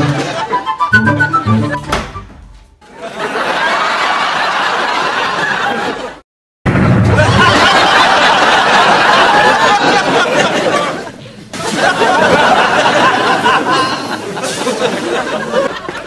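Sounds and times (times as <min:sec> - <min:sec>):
audience laughter: 0:00.0 - 0:00.8, 0:02.8 - 0:06.2, 0:07.0 - 0:16.0.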